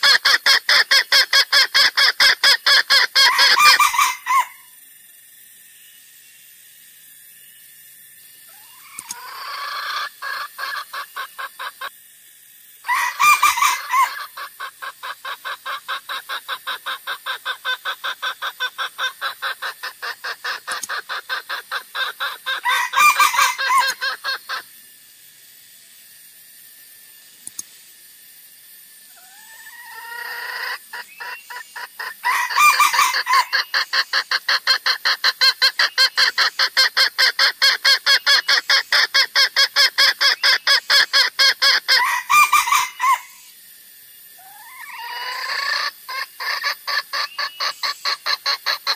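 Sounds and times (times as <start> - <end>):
junglefowl rapid clucking: 0.0 - 4.6, 8.5 - 11.9, 12.9 - 24.7, 29.2 - 43.4, 44.4 - 48.9
short bird calls: 8.5 - 11.9.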